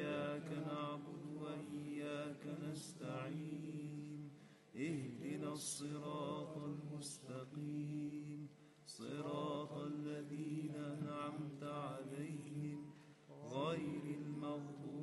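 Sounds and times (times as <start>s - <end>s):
male ensemble chanting: 0.0s - 4.2s, 9.0s - 15.0s.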